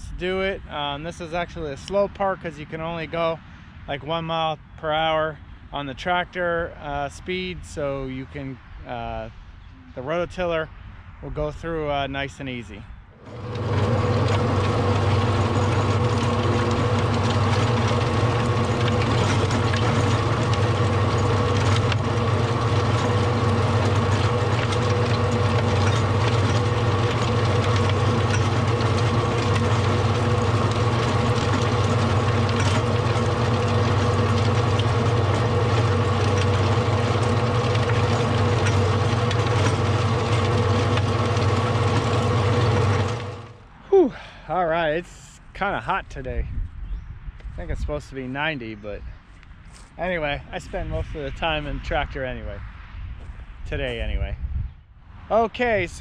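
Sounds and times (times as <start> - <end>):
tractor engine driving rototiller: 13.2 - 43.7.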